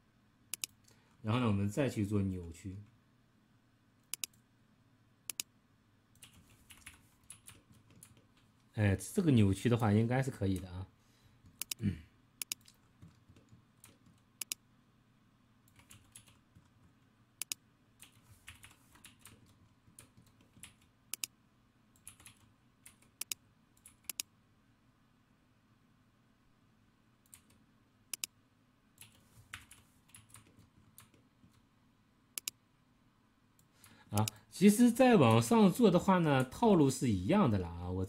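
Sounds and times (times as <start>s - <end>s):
faint low hum: 0.0s - 38.0s
computer mouse and keyboard clicks: 4.0s - 4.4s, 6.2s - 8.6s, 11.4s - 11.8s, 12.4s - 14.6s, 15.7s - 21.3s, 22.0s - 24.3s, 27.3s - 28.3s, 32.4s - 32.6s.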